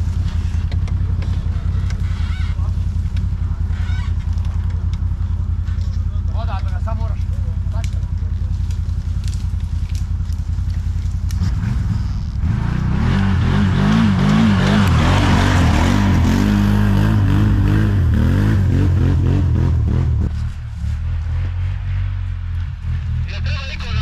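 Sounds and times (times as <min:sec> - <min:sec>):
atv engine revving: 0:00.0 - 0:24.0.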